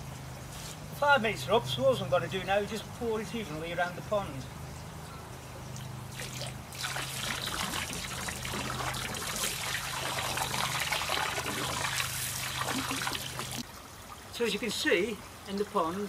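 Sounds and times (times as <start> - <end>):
water pouring into a pond: 5.7 - 16.0.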